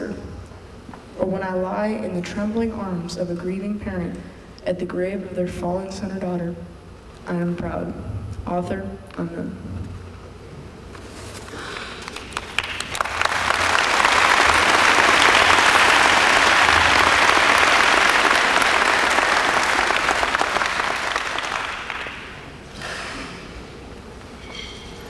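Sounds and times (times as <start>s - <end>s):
audience applauding: 11.6s - 22.5s.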